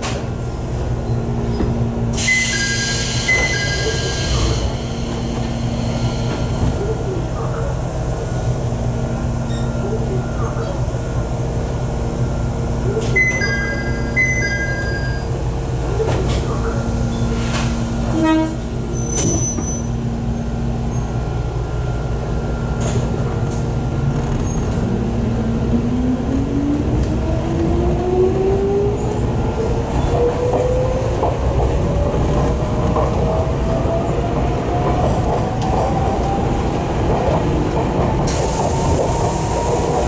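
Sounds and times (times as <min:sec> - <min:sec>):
train running rumble: 0:00.0 - 0:40.0
hiss: 0:38.3 - 0:40.0.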